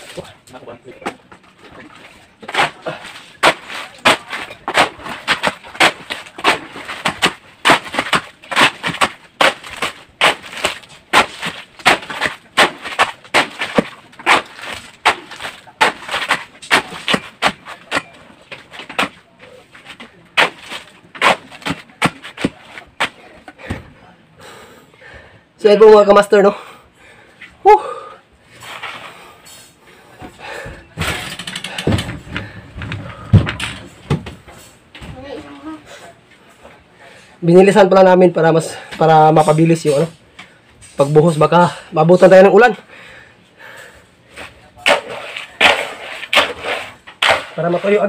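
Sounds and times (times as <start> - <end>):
shovel scraping concrete: 2.4 - 19.1, 19.8 - 23.2, 44.4 - 48.0.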